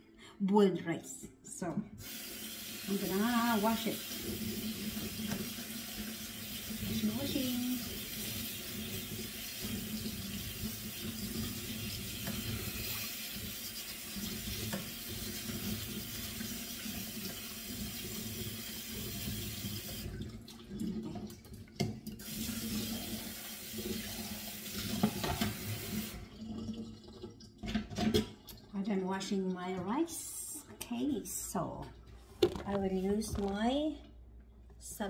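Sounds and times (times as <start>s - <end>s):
tap running into sink: 4.0s - 7.0s, 7.8s - 20.3s, 23.9s - 26.2s.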